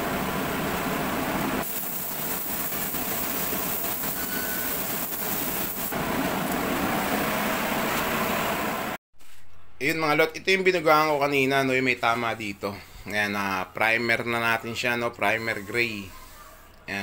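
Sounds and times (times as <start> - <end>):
rushing hiss of air: 1.6 - 6.0.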